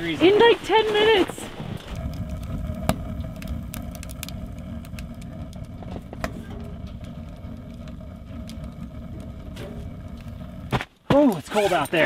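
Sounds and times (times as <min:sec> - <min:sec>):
fire crackling and popping: 0:00.0 - 0:12.0
wood stove fire rumbling: 0:00.0 - 0:12.0.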